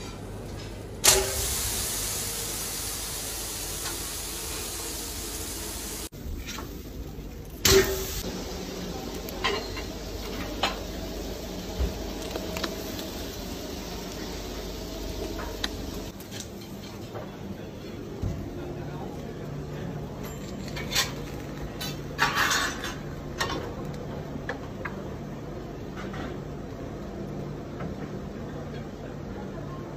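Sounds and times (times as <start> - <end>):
fish sizzling on grill: 1.0 - 16.9.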